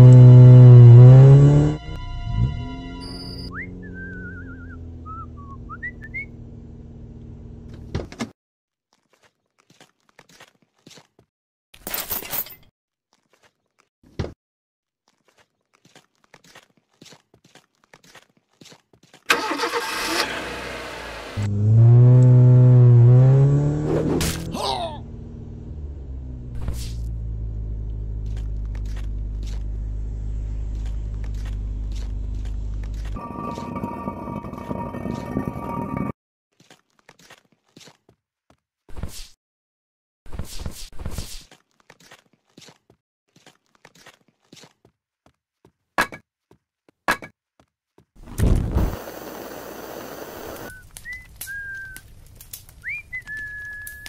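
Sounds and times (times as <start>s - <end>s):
person whistling: 3.0s - 6.3s, 50.7s - 52.0s, 52.8s - 54.0s
vehicle engine idling: 25.0s - 33.2s
fire flaring and burning: 48.2s - 54.0s.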